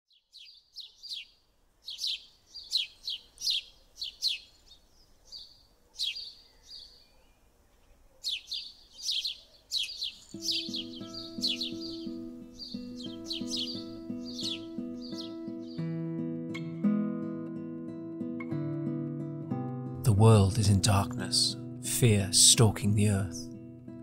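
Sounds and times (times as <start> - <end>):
small songbird chirping: 0.1 - 16.0.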